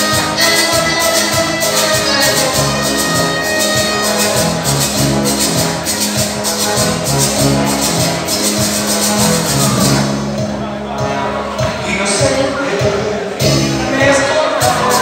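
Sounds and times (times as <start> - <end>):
bass line: 0.0 - 15.0
latin dance band over speakers: 0.0 - 15.0
shaker beat: 0.0 - 15.0.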